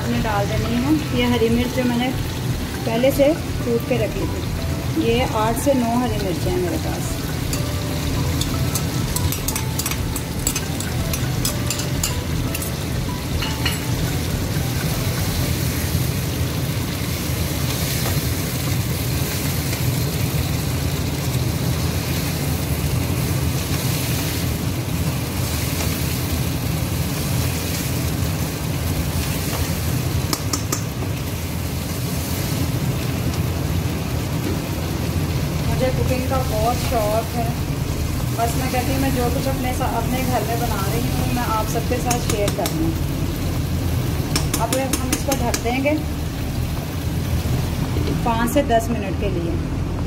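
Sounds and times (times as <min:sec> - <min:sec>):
chicken sizzling in oil: 0:00.0 - 0:48.3
spatula knocking against pan: 0:44.3 - 0:45.7.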